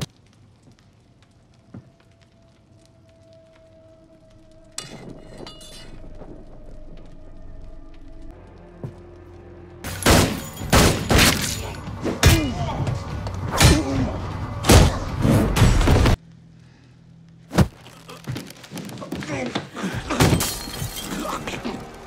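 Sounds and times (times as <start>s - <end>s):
low hum: 0.4s - 19.0s
film soundtrack music: 2.4s - 18.7s
people shouting: 19.8s - 22.0s.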